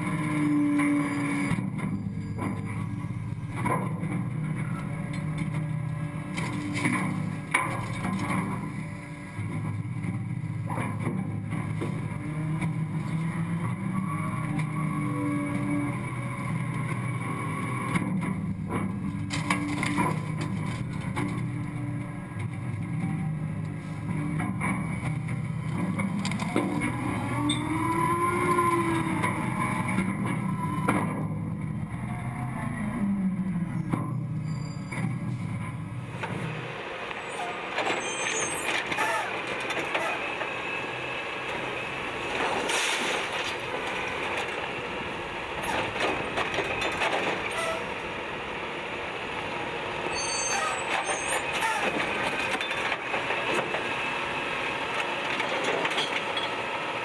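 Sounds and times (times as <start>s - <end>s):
garbage truck engine and hydraulics: 0.0s - 57.0s
refuse dropping into hopper: 42.2s - 48.0s.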